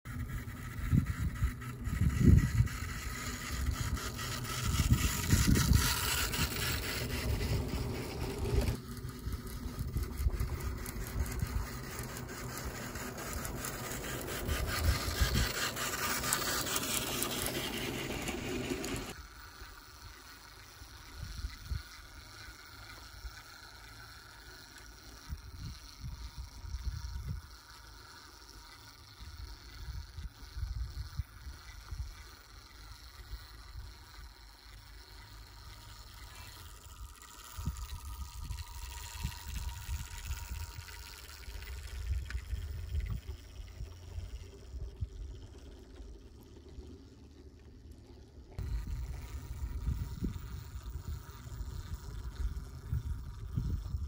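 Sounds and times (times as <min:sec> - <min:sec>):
wind buffeting microphone: 0:00.2 - 0:15.9, 0:48.6 - 0:54.0.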